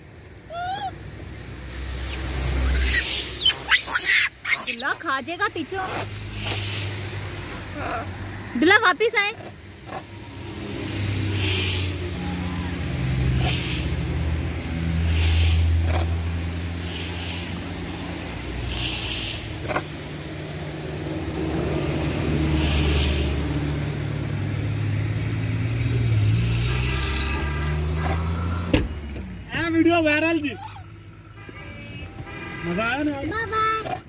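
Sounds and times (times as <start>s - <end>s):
vehicle engine rumble: 0.0s - 34.0s
hissing swishes: 1.7s - 4.8s, 5.8s - 7.6s, 10.3s - 12.4s, 13.0s - 20.0s.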